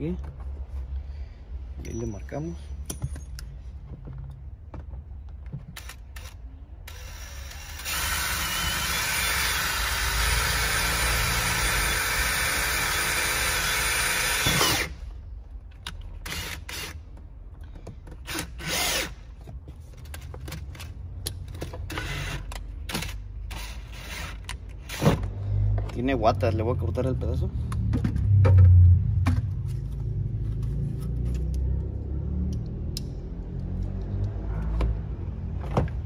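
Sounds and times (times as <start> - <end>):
drill boring through plastic: 5.8 - 15.0, 18.2 - 19.2.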